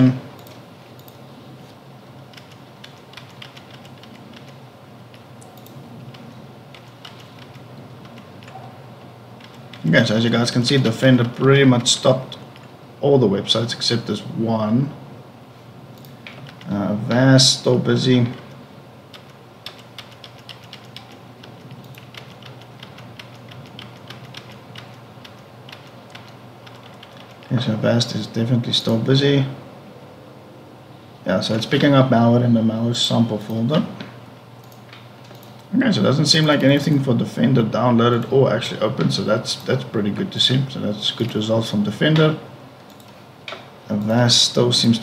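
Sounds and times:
steady low hum: 0.0 - 45.0
computer keyboard clicks: 2.3 - 8.6, 9.4 - 9.9, 16.0 - 16.7, 19.1 - 27.5.

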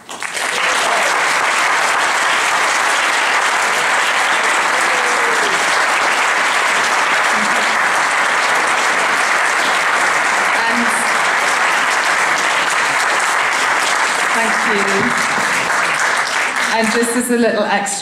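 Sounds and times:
audience applauding: 0.0 - 17.3.

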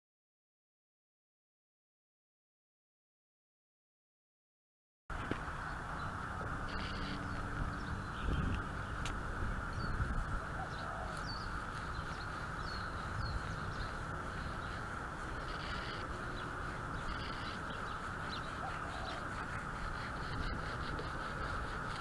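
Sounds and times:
birds chirping: 5.1 - 22.0
outdoor background hum: 5.1 - 22.0.

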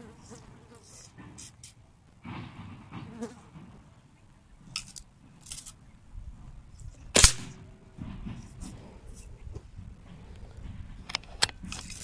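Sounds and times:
air rifle shot: 7.2 - 7.7.

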